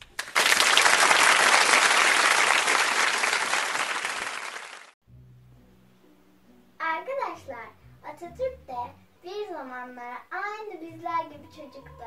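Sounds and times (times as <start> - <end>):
crowd applause: 0.0 - 5.0.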